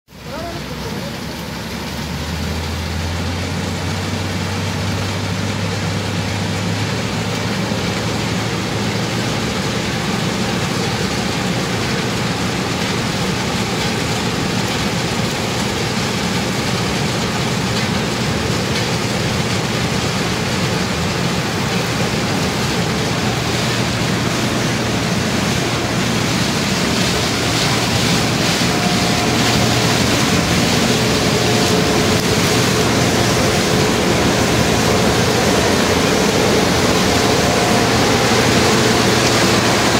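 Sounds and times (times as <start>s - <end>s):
combine harvester droning: 0.1s - 39.9s.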